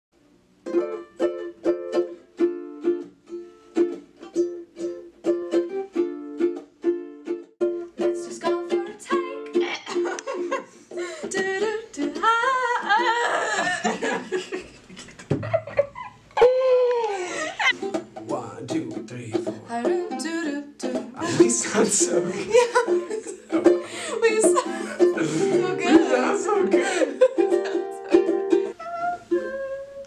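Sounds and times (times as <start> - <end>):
ukulele strumming: 0.5 - 14.2, 17.6 - 30.0
voices singing: 23.7 - 30.0.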